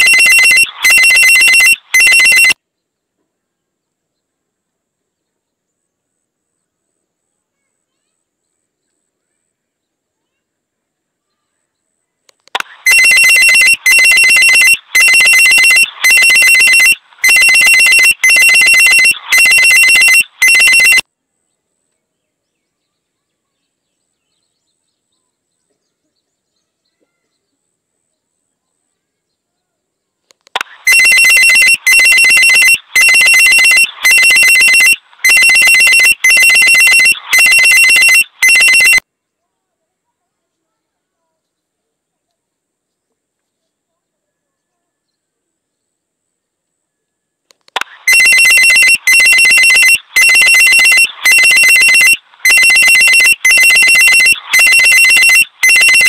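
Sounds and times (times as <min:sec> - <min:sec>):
electronic ringing tone: 0:00.0 - 0:02.6, 0:12.8 - 0:21.0, 0:30.6 - 0:39.0, 0:48.0 - 0:56.0.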